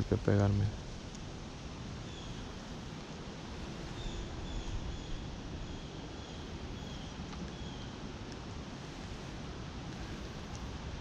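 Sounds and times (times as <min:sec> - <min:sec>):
small bird chirping: 0:02.0 - 0:03.0, 0:03.8 - 0:08.0.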